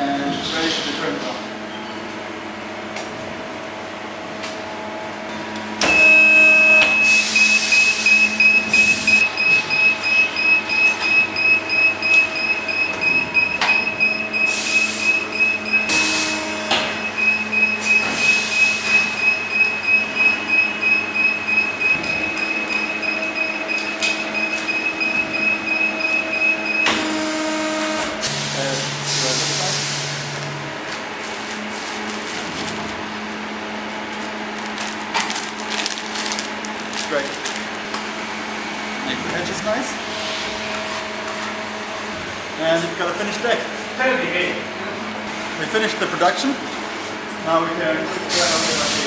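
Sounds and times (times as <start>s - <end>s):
hydraulic press starting up: 26.6s - 30.3s.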